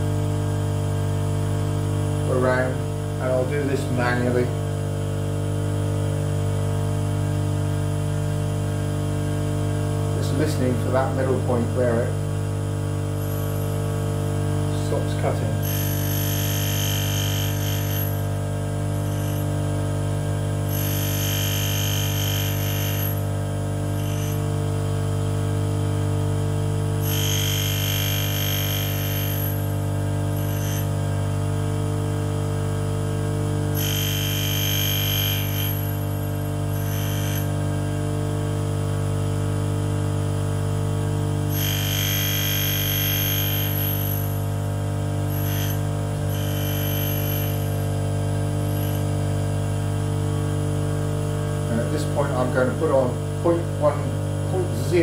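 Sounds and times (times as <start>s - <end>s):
grinder motor hum: 0.0s - 55.0s
grinding wheel hissing: 14.8s - 19.6s, 20.7s - 24.6s, 27.0s - 31.1s, 33.7s - 37.6s, 41.5s - 44.6s, 45.2s - 49.2s.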